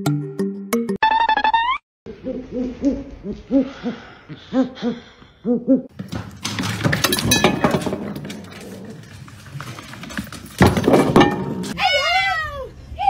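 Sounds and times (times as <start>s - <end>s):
metal bowl clattering and scraping: 5.9s - 11.8s.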